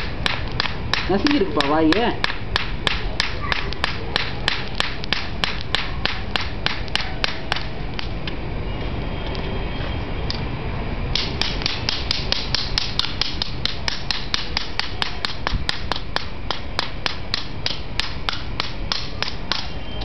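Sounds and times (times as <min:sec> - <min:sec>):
steady low rumble: 0:00.0 - 0:09.4.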